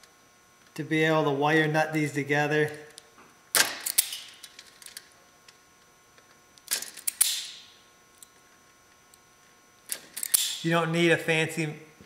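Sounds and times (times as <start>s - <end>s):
wire stripper clicking and snapping: 2.9s - 5.1s, 6.6s - 7.6s, 9.9s - 10.6s.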